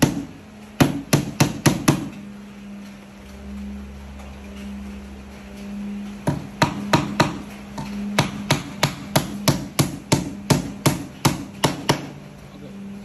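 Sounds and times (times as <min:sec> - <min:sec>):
hammer striking wooden box: 0:00.0 - 0:02.1, 0:06.2 - 0:07.4, 0:08.2 - 0:12.1
steady low hum: 0:00.0 - 0:13.0.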